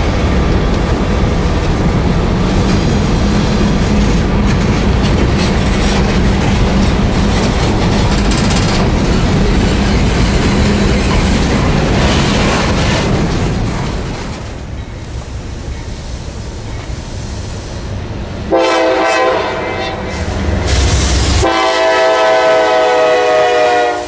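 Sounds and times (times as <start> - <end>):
train wheels on rail: 0.0 - 24.0.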